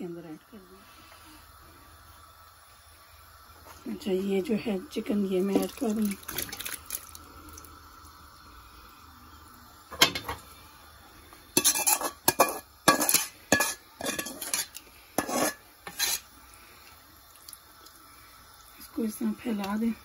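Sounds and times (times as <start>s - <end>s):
spoon clinking against pot: 11.6s - 16.1s.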